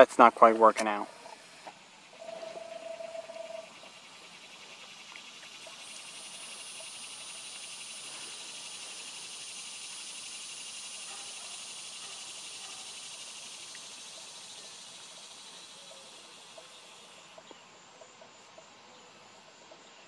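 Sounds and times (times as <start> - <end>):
high thin insect trill: 0.0 - 17.4
dense pulsing insect buzz: 1.2 - 17.4.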